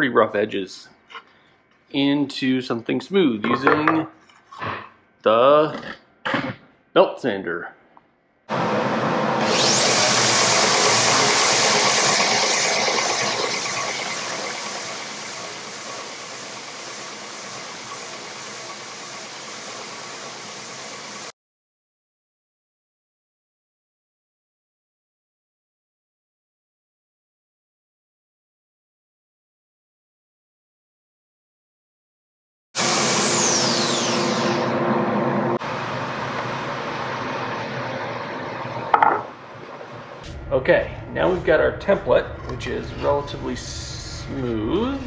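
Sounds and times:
belt sander whirring: 0:08.6 - 0:20.5.

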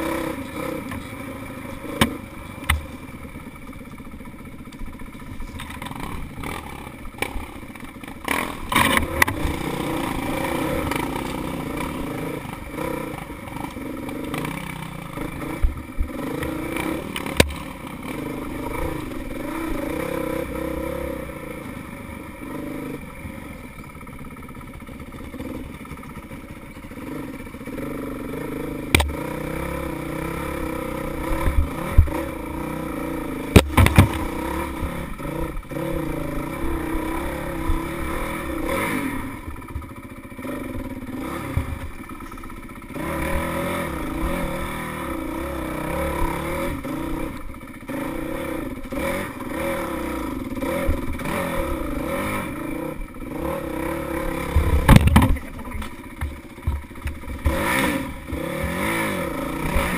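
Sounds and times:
dirt bike engine revving: 0:00.0 - 0:59.9
bike knocking over ruts: 0:01.9 - 0:03.2, 0:04.7 - 0:12.0, 0:15.7 - 0:18.1, 0:28.8 - 0:29.6, 0:33.4 - 0:35.1, 0:54.3 - 0:59.0.

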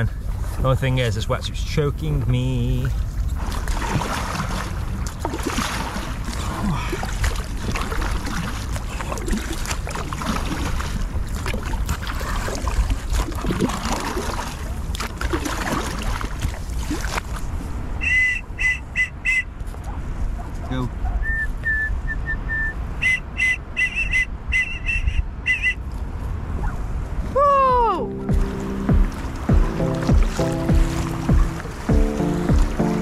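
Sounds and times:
wind rumbling on microphone: 0:00.0 - 0:33.0
paddle strokes splashing in water: 0:02.7 - 0:18.7, 0:28.3 - 0:33.0
high-pitched whistle blasts: 0:18.0 - 0:19.5, 0:21.2 - 0:25.9.

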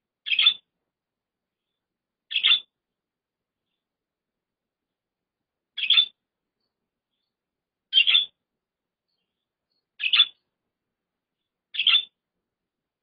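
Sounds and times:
budgerigar short high calls: 0:00.2 - 0:00.6, 0:02.3 - 0:02.7, 0:05.8 - 0:06.2, 0:07.9 - 0:08.4, 0:10.0 - 0:10.4, 0:11.7 - 0:12.2.

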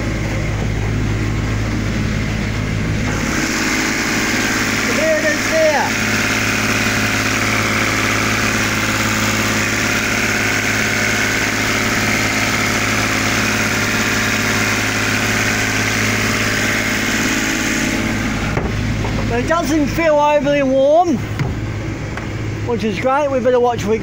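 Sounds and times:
boat engine running: 0:00.0 - 0:24.0.

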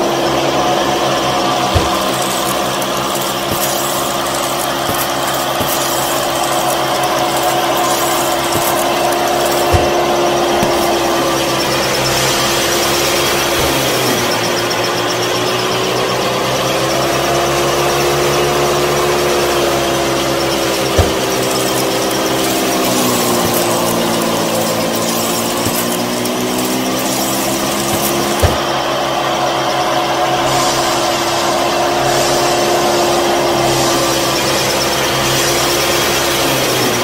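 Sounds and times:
small electric motor humming: 0:00.0 - 0:29.4.

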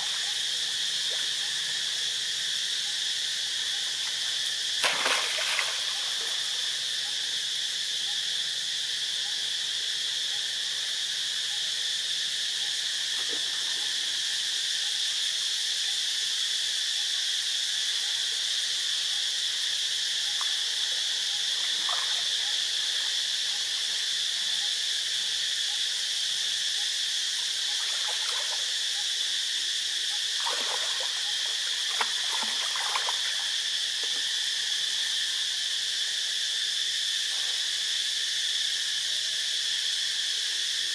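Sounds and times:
insect chorus drone: 0:00.0 - 0:40.9
faint water splashes: 0:04.8 - 0:06.7, 0:21.5 - 0:22.6, 0:27.7 - 0:28.7, 0:30.4 - 0:34.3.

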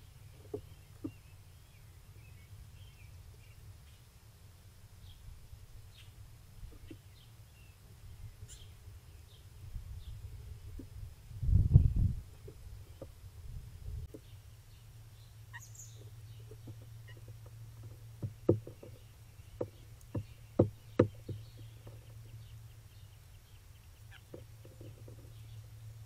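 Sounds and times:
bird knocking at feeder: 0:16.6 - 0:19.0, 0:19.6 - 0:22.1.

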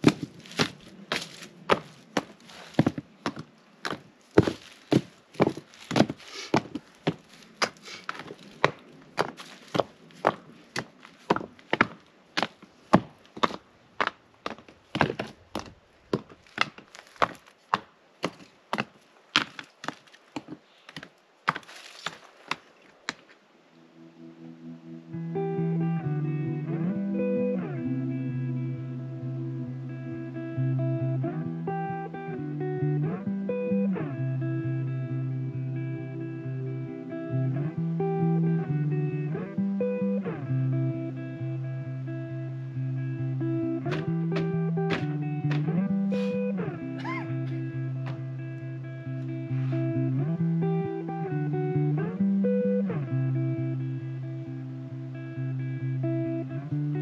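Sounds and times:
rocks knocking together: 0:00.0 - 0:23.4, 0:43.9 - 0:45.6
guitar chords strummed: 0:24.4 - 0:57.0.

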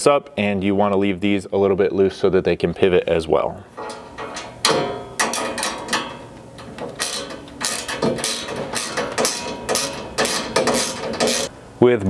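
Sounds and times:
metal hand tools clicking: 0:03.8 - 0:11.5.

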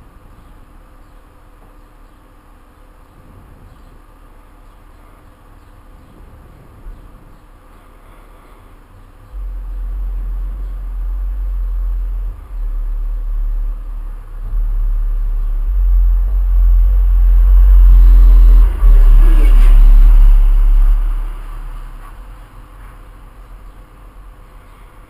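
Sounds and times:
loud low rumble: 0:09.2 - 0:24.7.

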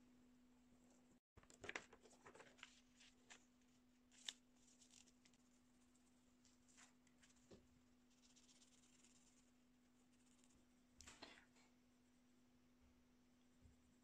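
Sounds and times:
paper rustling: 0:01.4 - 0:09.4.

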